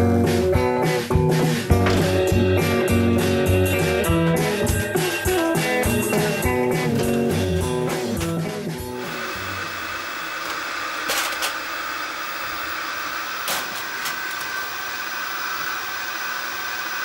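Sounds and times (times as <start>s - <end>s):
guitar music: 0.0s - 9.6s.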